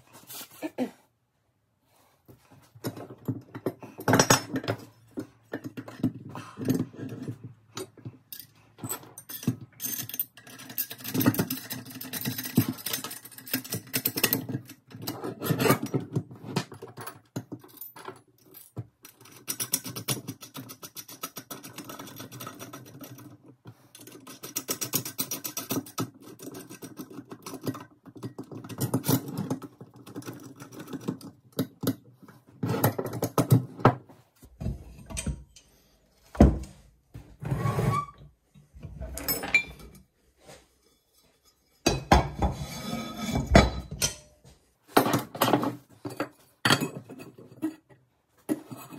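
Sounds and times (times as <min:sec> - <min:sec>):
metal parts clinking and rattling: 0:02.8 - 0:23.4, 0:39.0 - 0:40.0.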